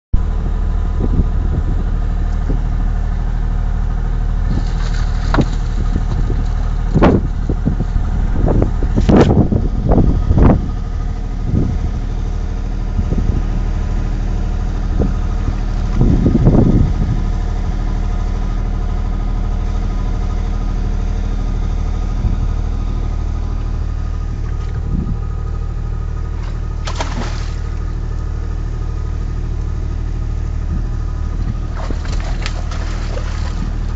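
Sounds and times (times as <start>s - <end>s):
engine idling: 0.2s - 33.9s
irregular knocks and scrapes: 4.5s - 7.2s.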